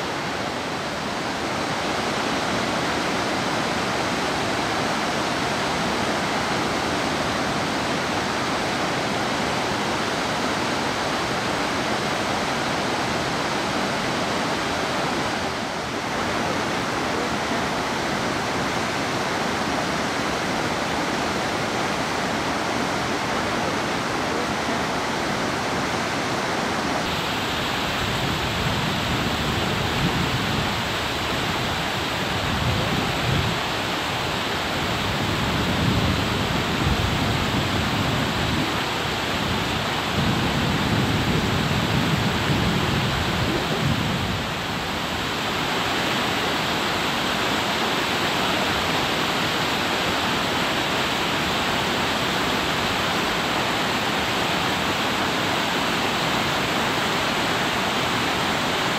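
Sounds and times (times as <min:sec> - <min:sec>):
stream rushing over boulders: 0:00.0 - 0:58.9.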